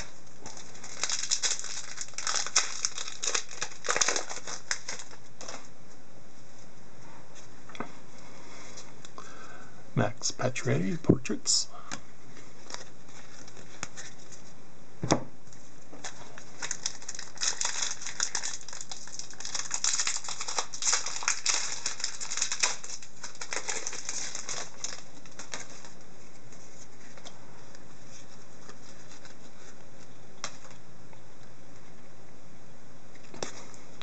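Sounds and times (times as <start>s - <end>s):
foil wrapper crinkling: 0.0s - 5.7s, 12.5s - 14.5s, 16.0s - 27.3s, 28.1s - 30.8s.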